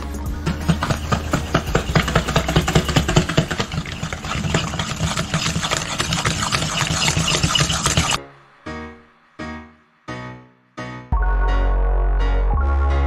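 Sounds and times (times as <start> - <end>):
keyboard background music: 0.0 - 4.9, 8.0 - 13.0
fork beating eggs in metal bowl: 0.3 - 8.2.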